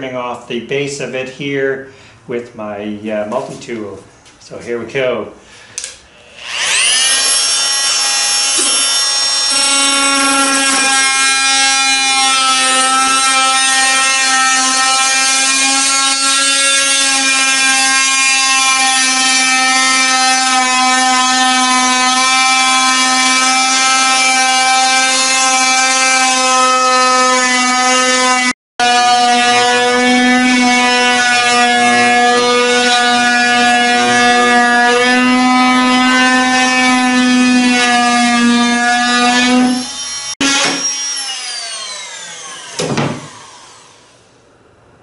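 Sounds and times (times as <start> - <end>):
oscillating multi-tool buzzing whine: 37.8 - 44.2.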